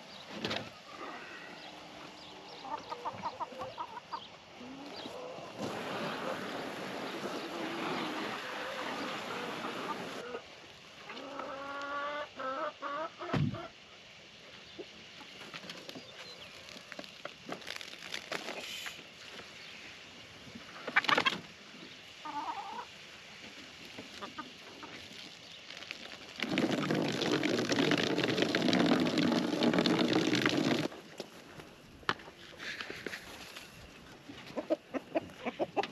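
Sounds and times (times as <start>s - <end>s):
chickens clucking: 0.9s - 13.8s, 20.6s - 25.1s, 34.0s - 35.9s.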